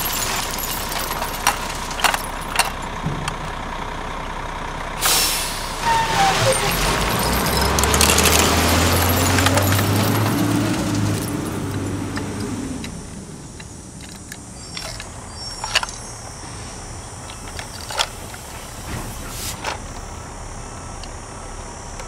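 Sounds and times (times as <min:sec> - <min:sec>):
toy truck clicks and clatter: 0:00.0 - 0:03.4, 0:05.9 - 0:16.4, 0:17.1 - 0:20.2.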